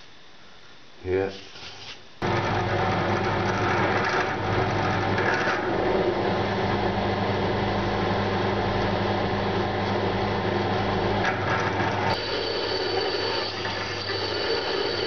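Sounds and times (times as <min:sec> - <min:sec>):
drill press motor hum: 0:02.2 - 0:15.0
drill bit cutting steel: 0:12.1 - 0:15.0.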